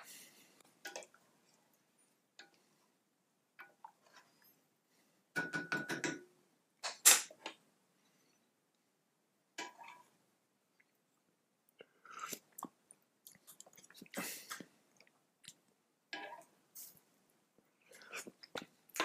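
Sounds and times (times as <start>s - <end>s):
spoon scraping a cooking pot: 9.6s - 10.2s.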